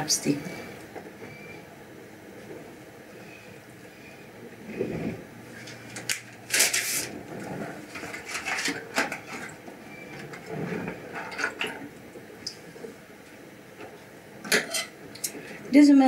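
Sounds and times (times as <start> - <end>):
bowl and utensils clattering: 14.4 - 15.0.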